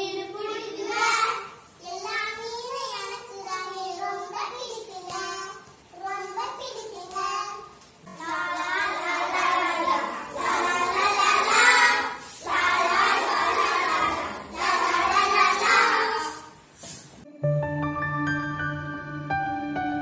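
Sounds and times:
children singing in chorus: 8.1 - 16.6
soft instrumental music: 17.2 - 20.0.

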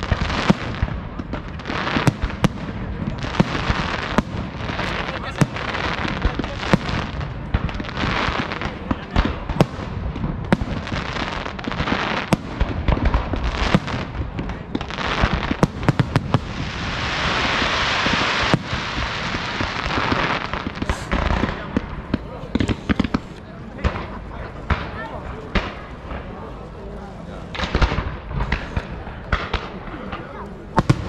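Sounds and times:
firework crackling hiss: 0.0 - 23.5.

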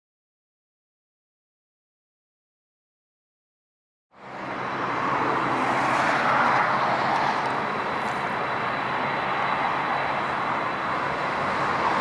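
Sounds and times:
jet engine noise with whine: 4.1 - 12.0.

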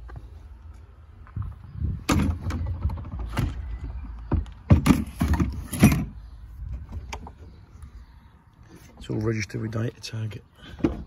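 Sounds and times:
sharp knocks and clunks: 2.0 - 6.2.

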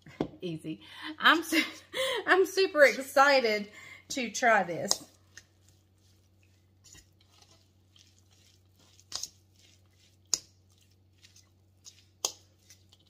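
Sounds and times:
fork stirring food squishing: 4.9 - 13.0.

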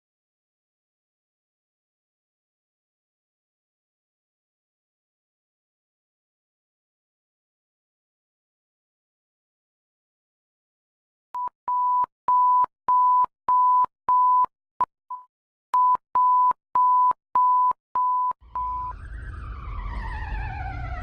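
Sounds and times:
censor bleeps: 11.4 - 14.5, 15.1 - 19.0
low rumble: 18.4 - 21.0
wailing alarm tone: 18.5 - 21.0.

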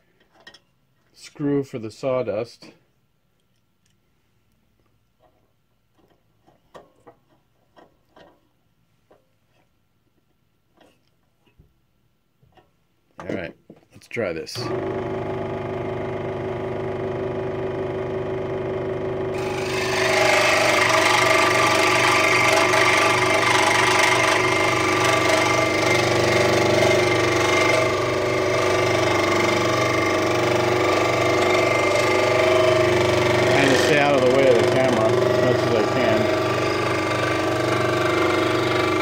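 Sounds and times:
scroll saw motor humming: 14.7 - 39.0
saw blade cutting wood: 19.4 - 39.0.

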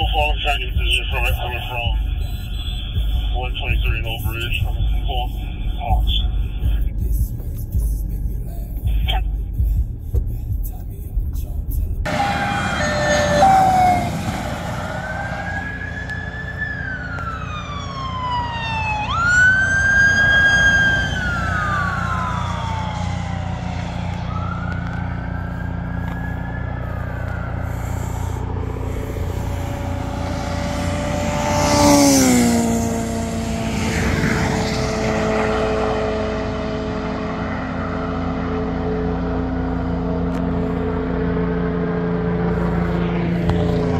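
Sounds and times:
police sirens wailing: 0.0 - 8.0, 12.0 - 43.9
vehicle passing close by: 12.0 - 43.9.

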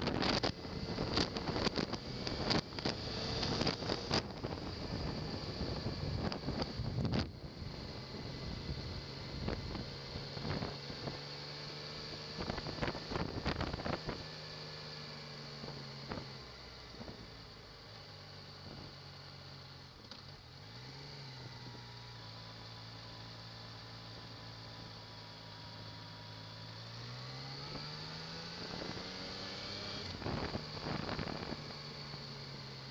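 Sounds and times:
motorcycle engine running: 0.0 - 32.9.

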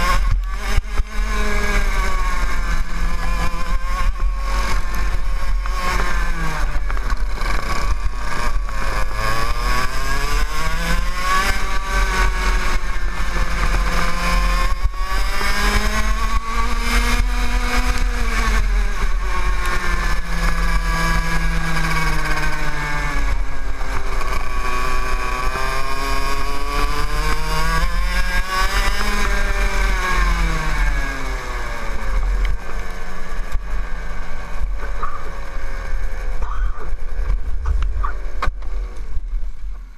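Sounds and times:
kart engine revving: 0.0 - 39.9.

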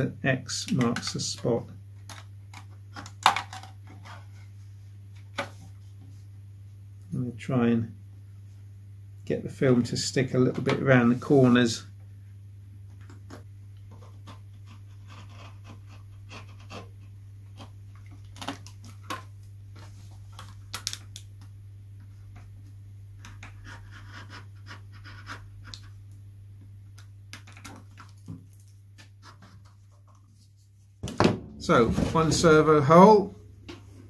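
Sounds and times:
steady low hum: 0.0 - 34.0
knife scratching plastic film: 14.0 - 19.1.

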